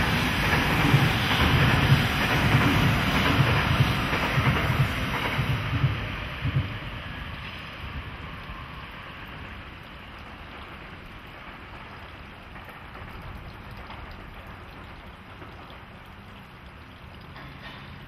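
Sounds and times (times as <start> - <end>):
steady hiss: 0.0 - 13.5
low hum of electric locomotives: 0.0 - 14.2.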